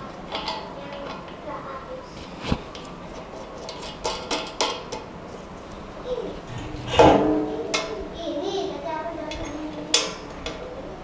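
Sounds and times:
metal tube clanking: 6.5 - 8.0.

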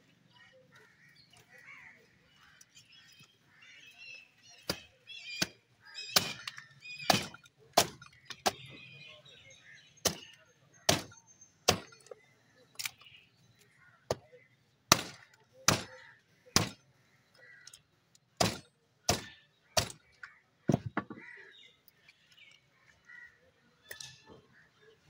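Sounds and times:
cleaver chopping through bone: 6.2 - 8.6, 10.9 - 12.1, 14.9 - 16.0, 16.6 - 16.8, 18.4 - 20.0.

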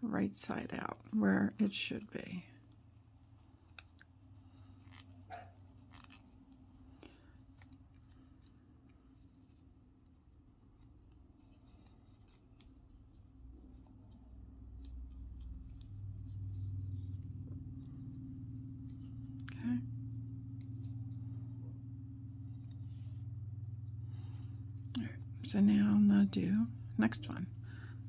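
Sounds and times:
low hum: 10.1 - 28.0.

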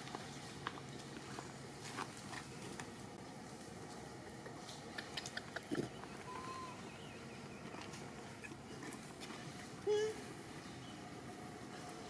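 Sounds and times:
soft chewing clicks: 4.4 - 6.2.

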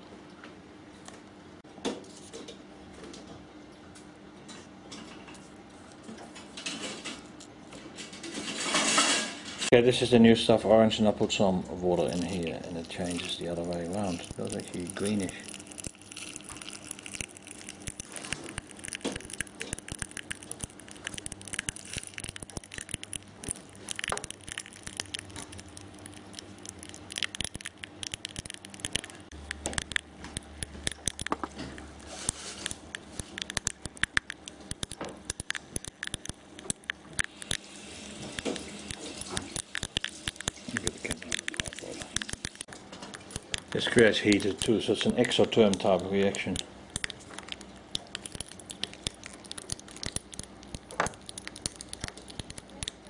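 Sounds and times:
gel beads crackling: 11.8 - 53.0.

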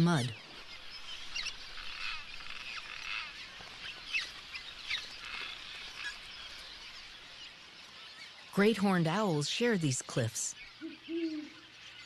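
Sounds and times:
swallows chirping and twittering: 0.0 - 12.0.

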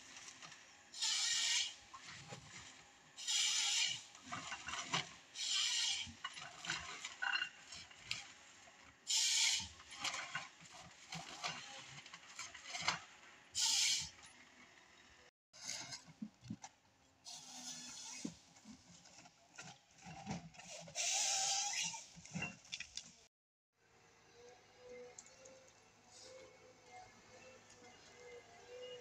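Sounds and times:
scraping and crackling of wood: 0.0 - 13.3, 17.7 - 23.3.

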